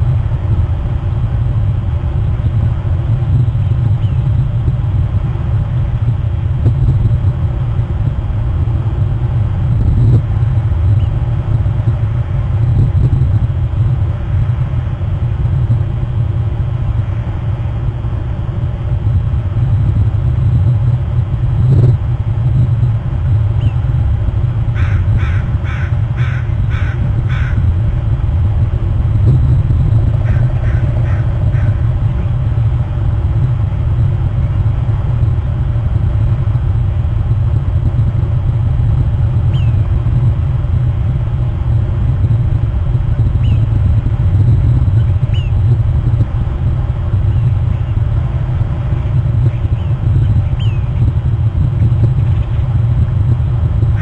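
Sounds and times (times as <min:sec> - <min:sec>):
steady low rumble: 0:00.0 - 0:54.0
crow cawing: 0:24.8 - 0:27.6, 0:30.3 - 0:31.8.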